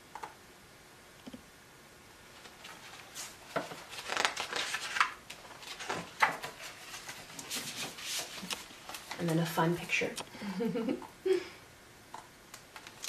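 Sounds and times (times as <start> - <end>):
book pages turning: 2.4 - 9.5, 12.7 - 13.0.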